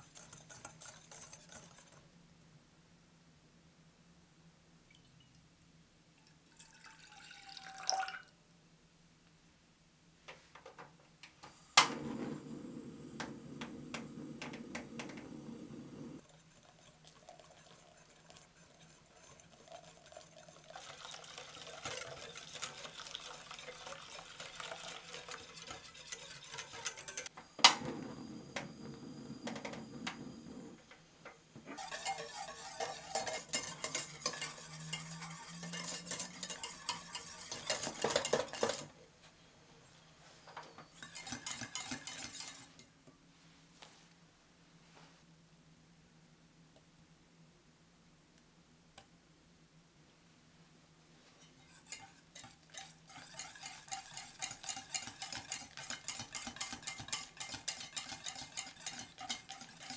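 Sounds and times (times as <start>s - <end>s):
whisk stirring in a glass bowl: 0.0s - 2.0s, 16.2s - 27.3s, 31.8s - 38.9s, 41.0s - 42.9s, 51.4s - 59.9s
whisk scraping a saucepan: 0.0s - 2.1s, 16.2s - 27.3s, 31.7s - 38.9s, 40.8s - 42.9s, 51.2s - 59.9s.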